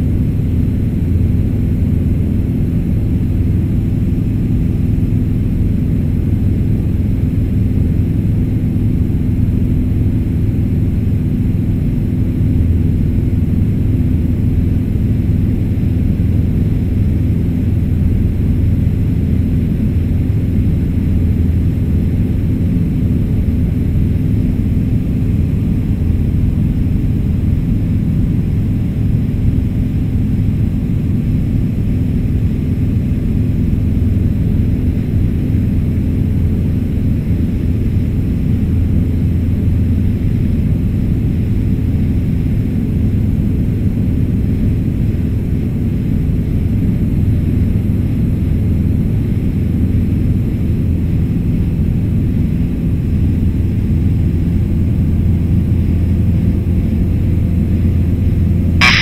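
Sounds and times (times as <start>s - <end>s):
aircraft engine droning in cabin: 0.0s - 59.0s.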